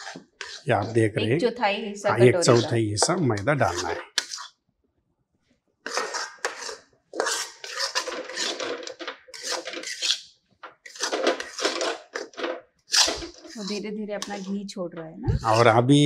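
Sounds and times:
metal spatula scraping a pan: 0:00.0 - 0:01.0, 0:03.6 - 0:04.6, 0:05.8 - 0:14.6.

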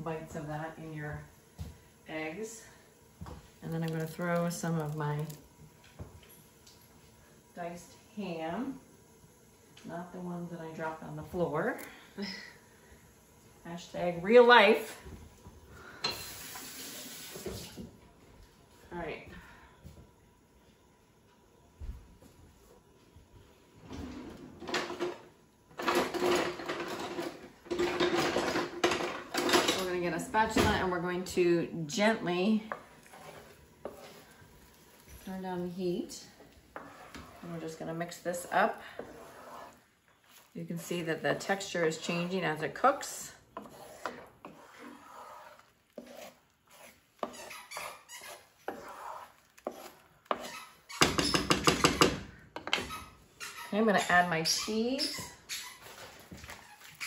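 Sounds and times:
spatula scraping frying pan: 0:32.6 - 0:35.2, 0:36.1 - 0:57.0.

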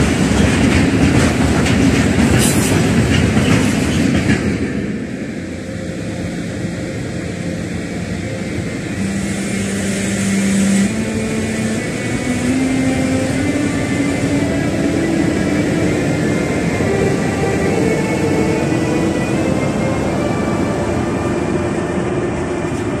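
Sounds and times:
train wheels clattering: 0:00.0 - 0:04.9
electric locomotive converter tone: 0:00.0 - 0:23.0.

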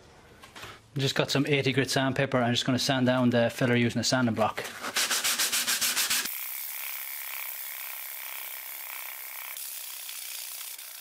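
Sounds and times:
sandpaper rubbing scratchy hiss: 0:04.8 - 0:06.9.

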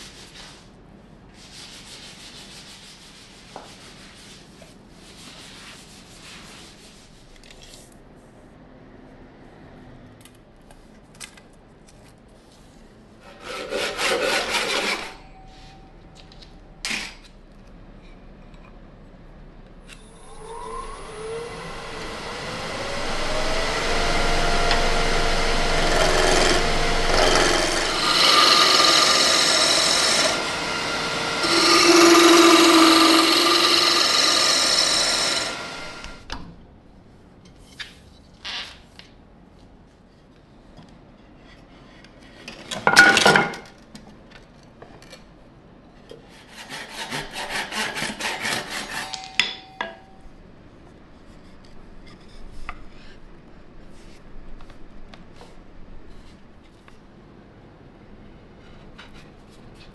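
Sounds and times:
tool rasping on spinning wood: 0:13.3 - 0:15.2, 0:25.2 - 0:36.2
wood lathe motor spinning: 0:20.2 - 0:36.2.

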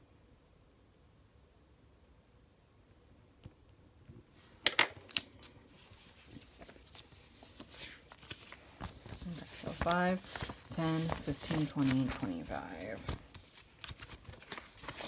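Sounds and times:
banknotes rustling: 0:04.5 - 0:15.0.

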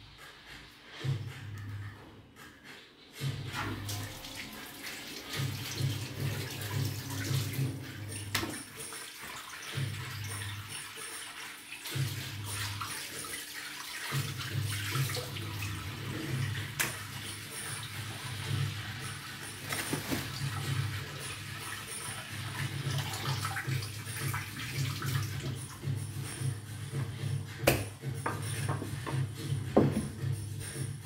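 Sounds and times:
water splashing: 0:03.6 - 0:26.2.

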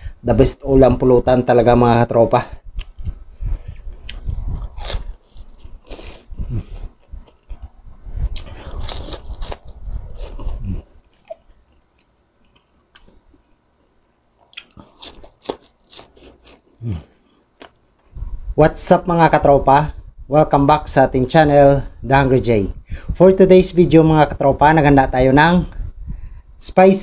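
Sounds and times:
quiet chewing and mouth sounds: 0:02.6 - 0:18.3
crisp crunching: 0:08.3 - 0:13.2.

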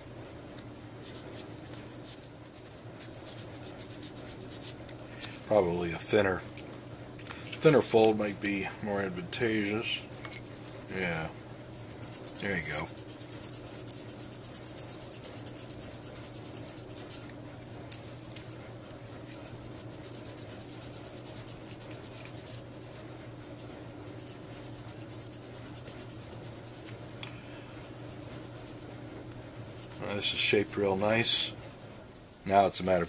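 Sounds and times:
steady low hum: 0:00.0 - 0:33.0
sandpaper scratching strokes: 0:11.7 - 0:17.2, 0:19.2 - 0:22.7, 0:24.0 - 0:26.9, 0:27.8 - 0:33.0.

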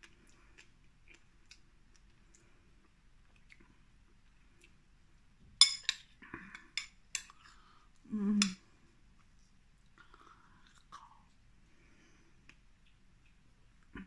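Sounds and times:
metal spoon clinking on bowl: 0:05.6 - 0:06.1.

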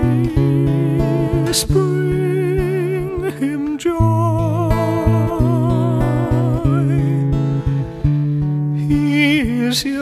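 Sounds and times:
tenor voice singing with vibrato: 0:00.0 - 0:07.4
plucked acoustic guitar: 0:00.0 - 0:10.0.

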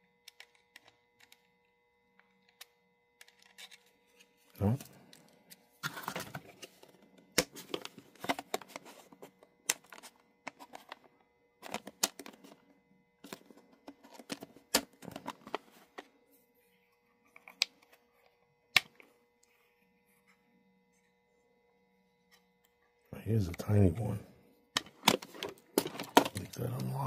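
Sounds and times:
faint steady hum: 0:00.0 - 0:27.0
plastic case clicks and rattles: 0:11.6 - 0:12.6, 0:24.8 - 0:26.9.

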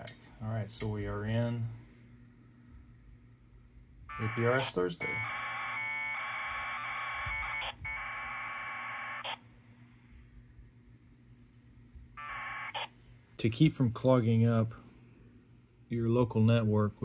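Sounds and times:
data packet tone bursts: 0:04.1 - 0:09.4.

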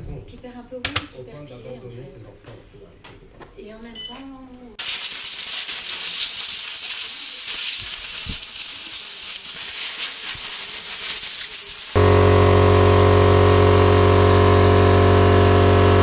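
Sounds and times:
compressed air blow gun hissing: 0:04.8 - 0:12.0.

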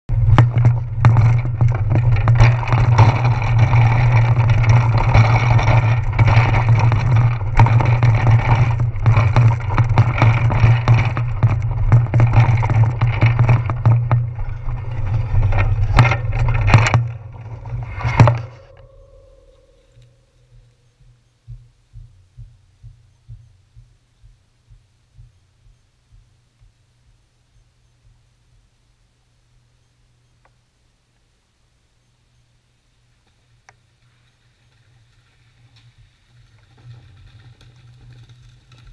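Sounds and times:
faint ticks: 0:19.5 - 0:28.7.

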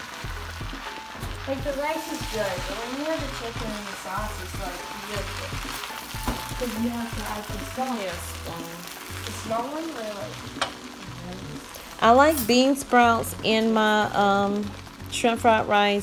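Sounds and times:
background music with bass line: 0:00.0 - 0:09.6
rice sizzling in a wok: 0:00.0 - 0:16.0.

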